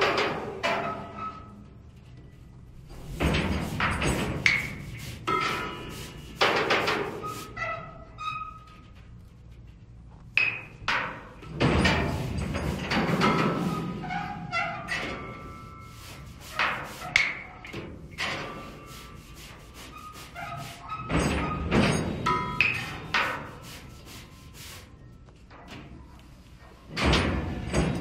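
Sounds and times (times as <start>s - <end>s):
scraping on metal dumpster: 2.9s - 7.8s, 11.0s - 23.9s.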